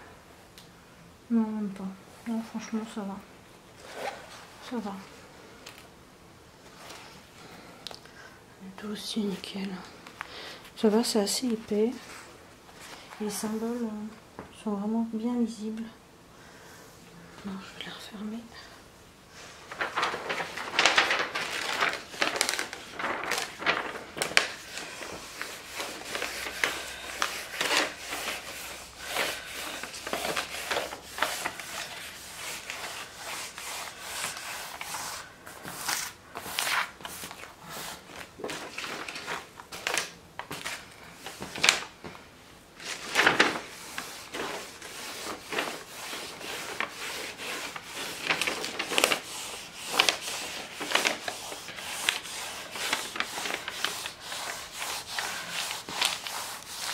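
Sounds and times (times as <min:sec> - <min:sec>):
plastic film rustling and crinkling: 0:19.3 - 0:56.9.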